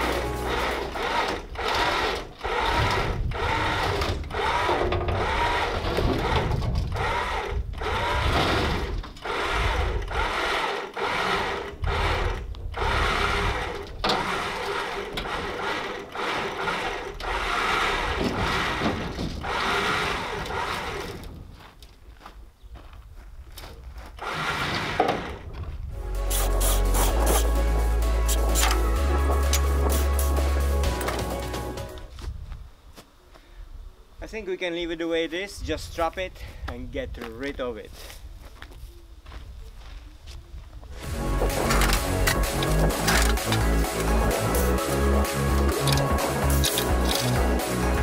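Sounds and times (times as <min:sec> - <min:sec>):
winch motor running under load: 0:00.0 - 0:21.4, 0:24.2 - 0:25.4, 0:26.2 - 0:32.0, 0:41.0 - 0:48.0.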